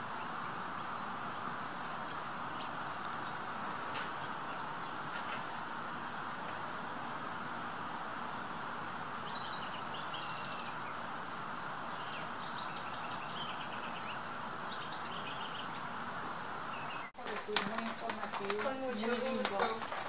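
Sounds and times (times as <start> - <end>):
high insect buzz: 0.0 - 17.1
outdoor background noise: 0.0 - 20.0
birds chirping and whistling: 11.3 - 17.1.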